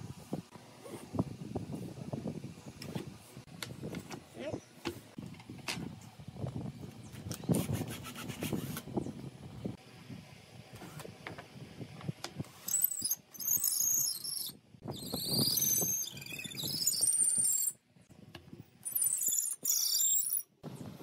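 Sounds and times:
wood rubbing squeaks: 12.6 - 17.8, 18.8 - 20.5.

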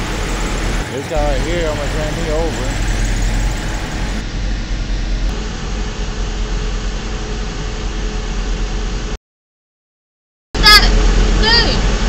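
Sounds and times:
diesel truck engine idling: 0.0 - 9.2.

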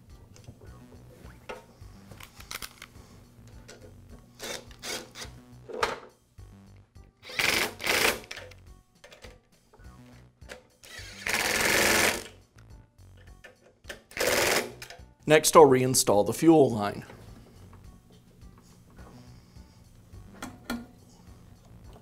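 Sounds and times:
cordless power driver running: 10.9 - 12.3, 14.2 - 14.7.

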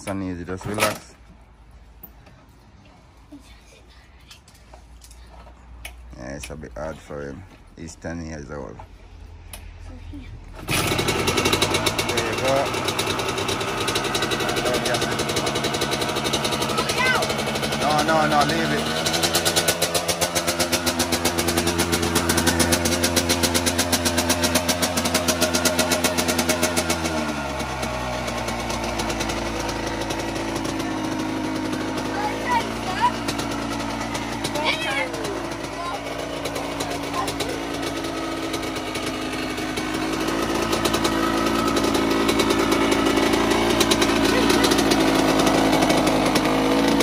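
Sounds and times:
two-stroke engine running: 10.5 - 47.0.

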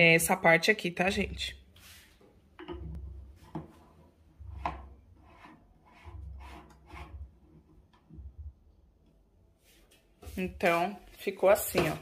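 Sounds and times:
plastic scraping on plastic: 3.4 - 8.2.

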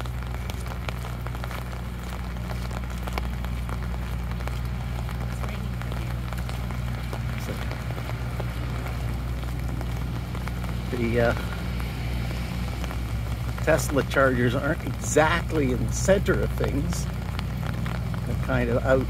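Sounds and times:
rain on an umbrella: 0.0 - 19.0
steady low hum: 0.0 - 19.0.

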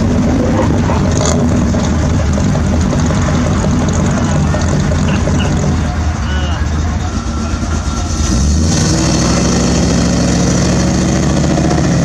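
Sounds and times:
car engine rumbling: 0.0 - 12.0.

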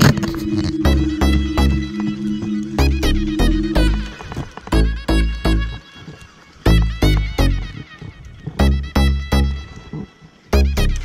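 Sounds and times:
instrumental music with heavy bass beat: 0.0 - 5.8, 8.6 - 9.7, 10.5 - 11.0.

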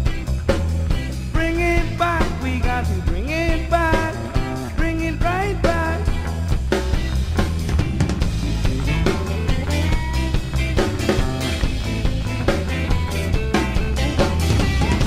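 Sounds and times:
bass line: 0.0 - 15.0
drums: 0.0 - 15.0
person singing: 1.3 - 6.4, 8.5 - 11.5.

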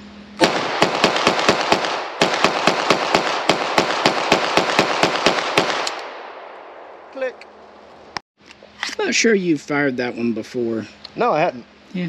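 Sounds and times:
pistol shots fired rapidly: 0.4 - 6.1.

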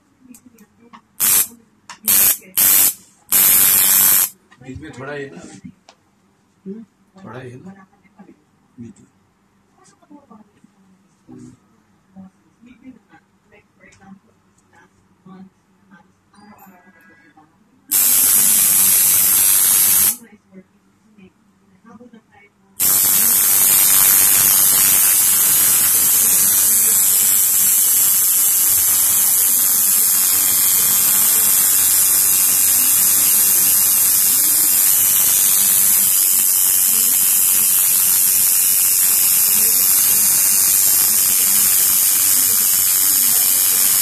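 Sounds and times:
tattoo machine buzzing: 1.2 - 1.5, 2.1 - 4.4, 17.9 - 20.2, 22.8 - 44.0
loud even hiss: 1.2 - 4.4, 17.9 - 20.2, 22.8 - 44.0.

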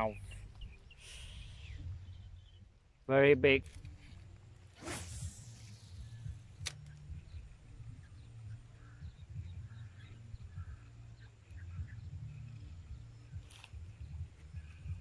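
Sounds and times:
wind rumble on microphone: 3.6 - 15.0
brief hissing burst: 4.8 - 6.2
sharp click: 6.6 - 7.0.

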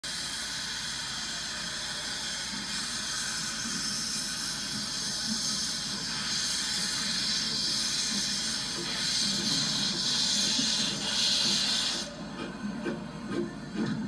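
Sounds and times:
steam locomotive hissing: 0.0 - 14.0.

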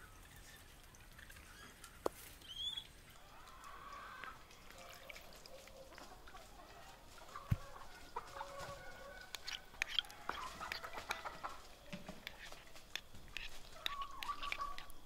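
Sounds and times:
chickens clucking: 0.2 - 15.0
spoon clicking against bowl: 9.3 - 10.1, 12.2 - 15.0.

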